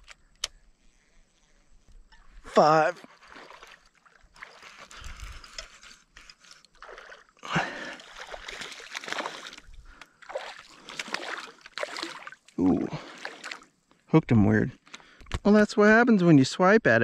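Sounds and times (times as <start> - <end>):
fish thrashing and splashing water: 3.1 - 5.2, 6.7 - 13.7.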